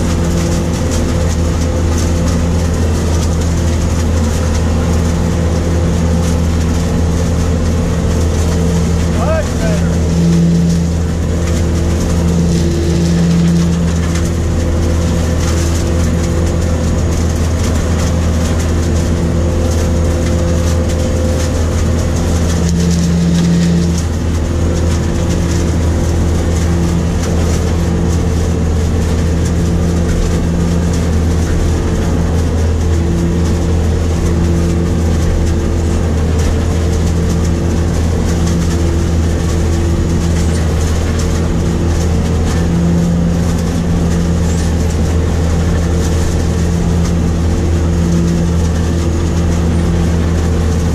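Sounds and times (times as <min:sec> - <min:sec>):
harvester engine drone: 0:00.0 - 0:50.9
steady machinery hums: 0:00.0 - 0:50.9.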